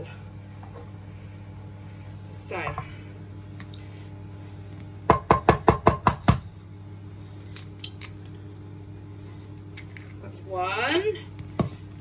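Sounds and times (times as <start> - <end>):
egg knocking on metal bowl: 5.1 - 6.5.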